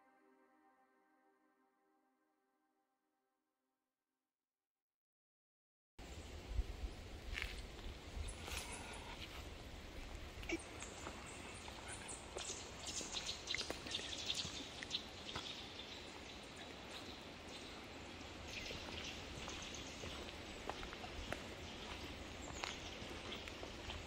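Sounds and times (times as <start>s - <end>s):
faint outdoor hiss: 6.0s - 24.0s
footsteps on leafy dirt path: 7.2s - 24.0s.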